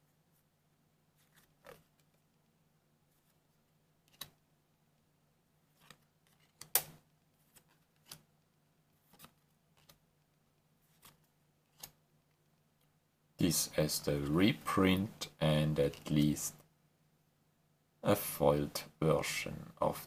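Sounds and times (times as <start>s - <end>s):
trading cards flipped: 1.2s - 2.2s, 4.1s - 4.4s, 5.8s - 8.3s, 9.1s - 10.0s, 10.9s - 12.0s.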